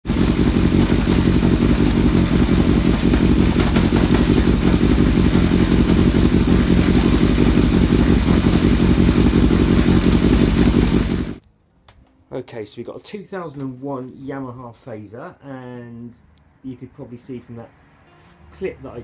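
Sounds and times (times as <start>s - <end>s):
motorcycle engine running: 0.0s - 11.4s.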